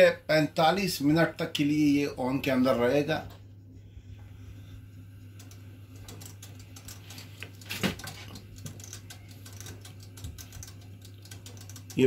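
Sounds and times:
low hum: 1.6s - 12.0s
oven timer knob ratcheting clicks: 5.4s - 12.0s.

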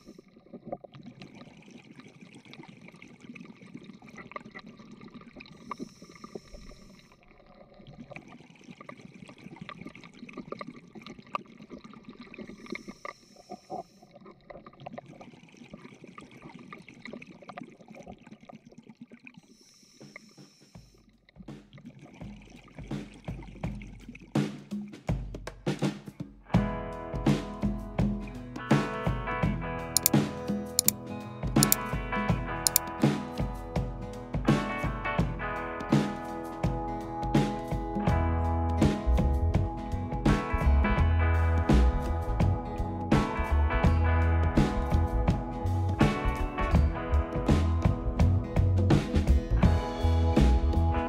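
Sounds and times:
underwater water noise: 0.0s - 24.3s
hiss: 19.5s - 20.9s.

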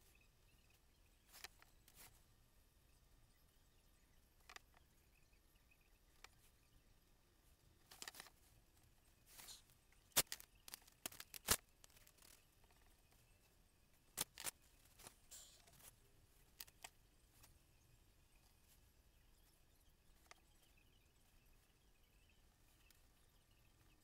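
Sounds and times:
rustles and scrapes: 1.2s - 2.3s, 7.8s - 13.3s, 14.2s - 17.6s.

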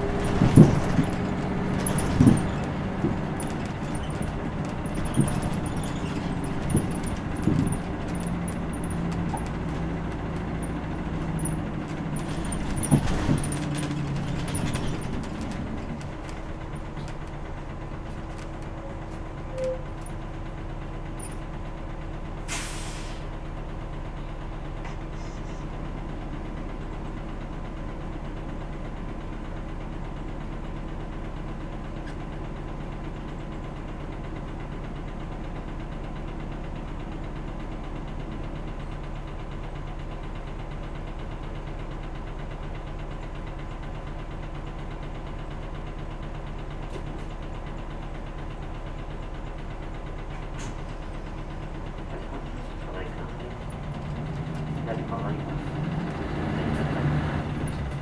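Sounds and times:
bus body rattling: 0.0s - 58.0s
bus diesel engine: 0.0s - 58.0s
air brakes hissing: 22.5s - 23.4s, 24.9s - 25.8s.

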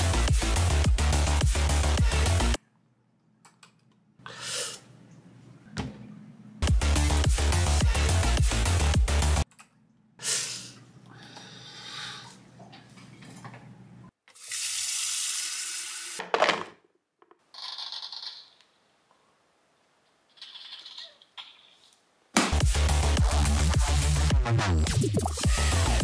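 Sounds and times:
tap water running: 14.3s - 16.2s.

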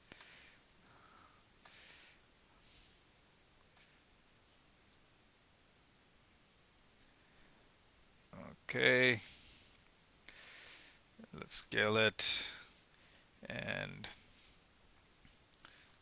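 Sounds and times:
computer mouse clicks: 1.0s - 1.8s, 3.0s - 5.0s, 6.5s - 7.6s, 10.0s - 10.3s, 14.5s - 16.0s.

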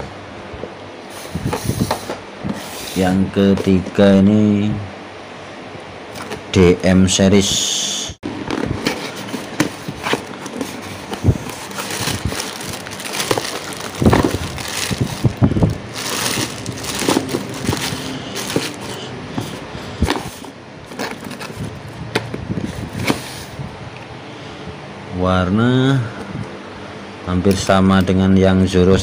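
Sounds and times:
handling knocks and clicks: 8.3s - 15.3s, 16.0s - 22.4s
paper rustling: 8.4s - 21.7s
plastic bag crinkling: 8.6s - 19.1s.

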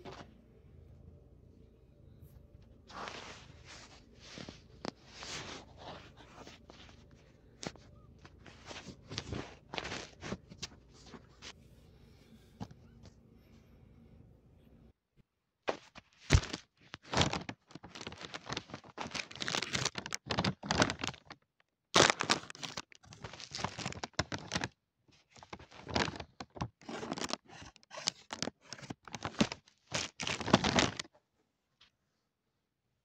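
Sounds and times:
scratchy rustling and crackling: 2.8s - 11.6s, 15.7s - 21.3s, 22.0s - 31.1s.

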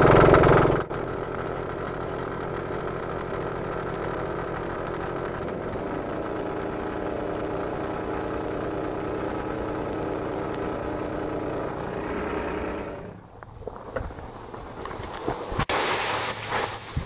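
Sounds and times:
diesel engine running: 0.0s - 17.0s
piston air compressor pumping: 10.7s - 17.0s.

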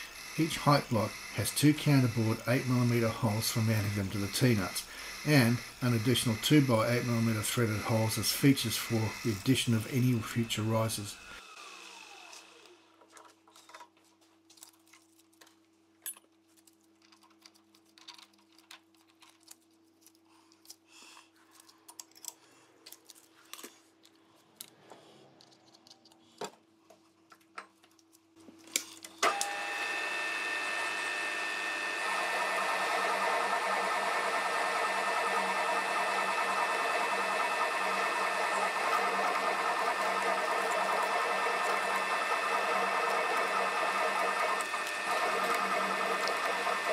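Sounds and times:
drill cutting metal: 0.0s - 12.9s, 29.2s - 46.9s
spindle motor whining: 0.0s - 13.0s, 29.2s - 46.9s.

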